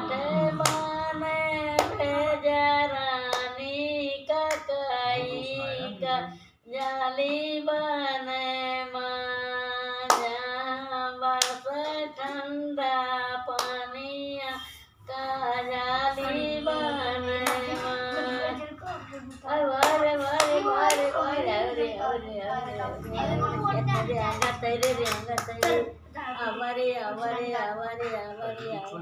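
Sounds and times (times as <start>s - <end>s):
woman singing: 0.0s - 29.0s
hands clapping: 0.4s - 1.0s, 1.8s - 2.0s, 17.4s - 18.2s, 19.8s - 21.2s, 24.0s - 25.9s.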